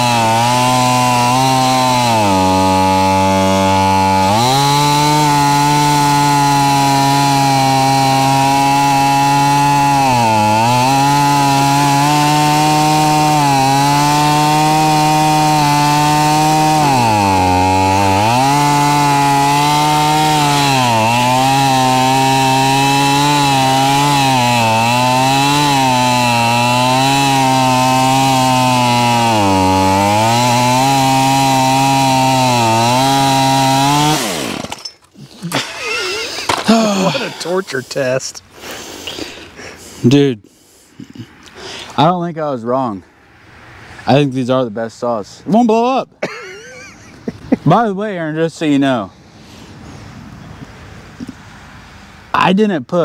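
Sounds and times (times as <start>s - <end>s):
chainsaw running flat out: 0.0s - 34.8s, 35.5s - 37.6s.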